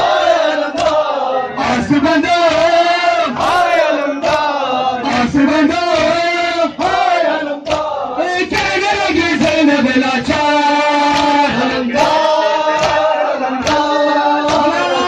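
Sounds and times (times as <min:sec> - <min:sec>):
men chanting a lament: 0:00.0 - 0:15.0
chest-beating slaps: 0:11.1 - 0:13.9.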